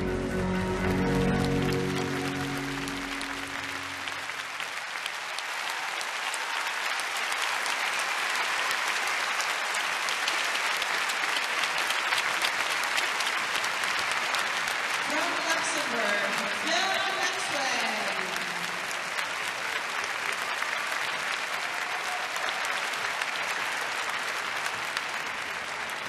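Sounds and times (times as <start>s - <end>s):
held music notes: 0.0s - 4.3s
audience applauding: 0.0s - 26.0s.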